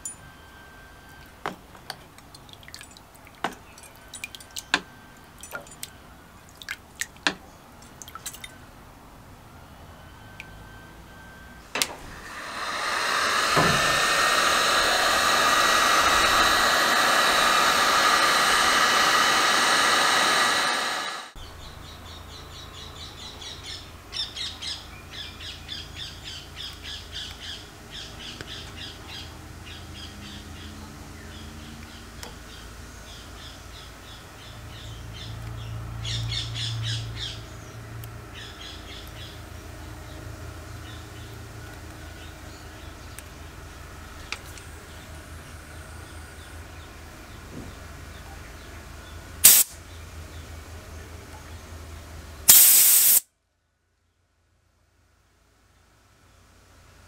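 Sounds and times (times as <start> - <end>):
sharp clicks and drips: 1.1 - 8.6, 10.3 - 10.6
heat gun fan whining and blowing: 9.5 - 21.4, 49.3 - 50.0.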